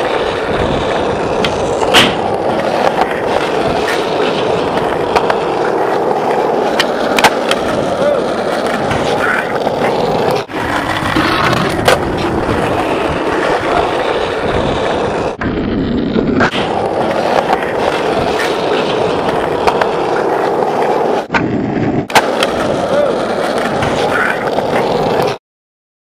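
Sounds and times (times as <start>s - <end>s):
skateboard wheels rolling on concrete: 0.0s - 25.4s
skateboard landing clack: 1.3s - 12.7s, 16.2s - 25.3s.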